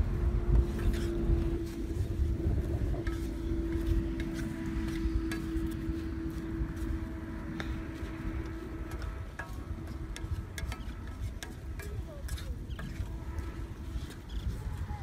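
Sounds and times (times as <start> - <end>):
steady drone: 0.0 - 12.2
wind rumbling on microphone: 0.0 - 15.0
spatula scraping frying pan: 8.9 - 14.4.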